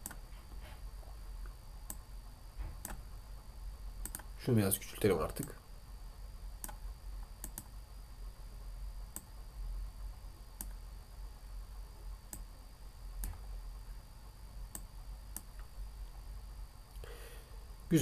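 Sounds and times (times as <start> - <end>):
steady low hum: 0.0 - 18.0
computer mouse clicking: 2.8 - 3.0, 4.0 - 4.3, 6.6 - 6.8, 7.4 - 7.8, 9.1 - 9.3, 10.6 - 10.8, 12.3 - 12.5, 13.2 - 13.4, 14.7 - 15.7.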